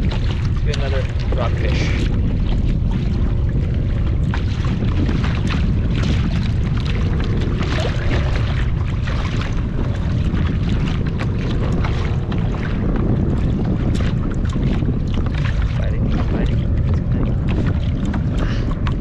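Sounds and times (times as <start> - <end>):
water lapping against kayak hull: 0.0 - 19.0
wind buffeting microphone: 0.0 - 19.0.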